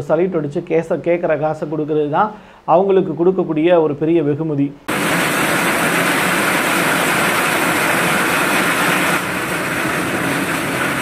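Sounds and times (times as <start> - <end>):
heavy rain hissing: 4.9 - 11.0.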